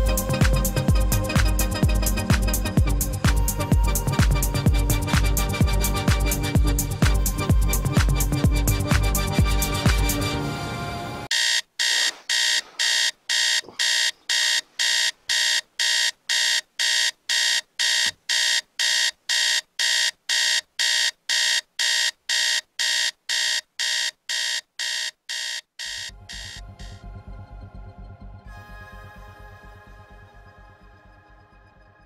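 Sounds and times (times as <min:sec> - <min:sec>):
alarm clock beeping: 0:11.3 - 0:27.0.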